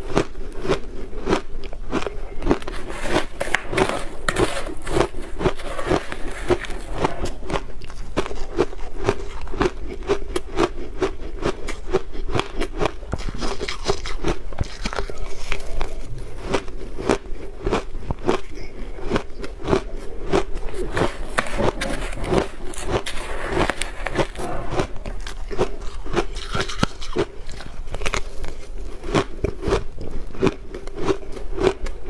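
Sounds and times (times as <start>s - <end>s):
ice crunching when chewed: 0.0s - 32.0s
metal spoon scraping ice: 2.6s - 7.4s, 20.7s - 28.6s.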